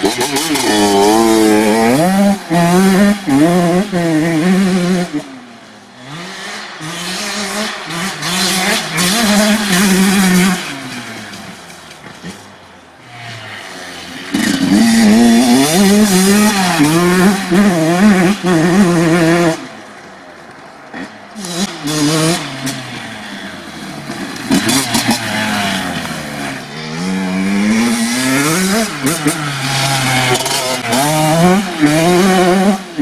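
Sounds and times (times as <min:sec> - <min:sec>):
two-stroke engine revving: 0:00.0 - 0:19.8, 0:20.9 - 0:33.0.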